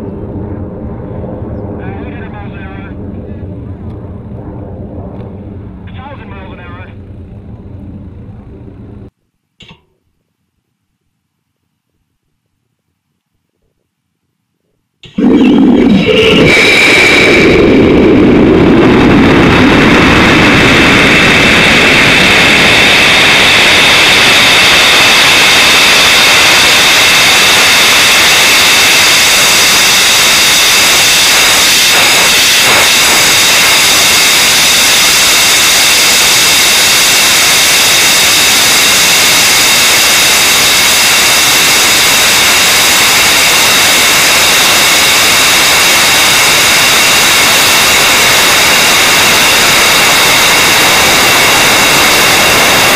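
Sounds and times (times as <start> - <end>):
rocket engine rushing: 0.0 - 9.1, 15.0 - 52.9
high whistling tones: 15.0 - 17.8.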